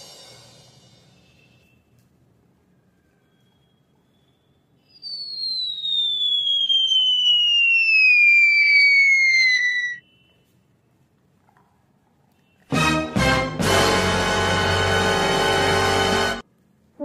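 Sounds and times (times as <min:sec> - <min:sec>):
descending whistle: 0:02.8 - 0:10.5.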